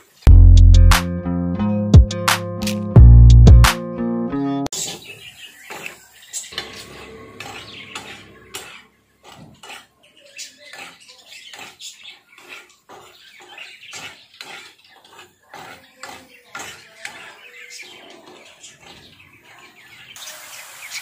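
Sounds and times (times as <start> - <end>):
metal spatula scraping frying pan: 6.7 - 17.2.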